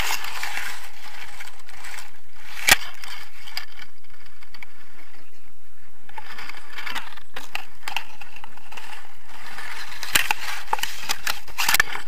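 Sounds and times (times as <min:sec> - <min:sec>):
grass rustling and crackling: 0:00.0 - 0:12.0.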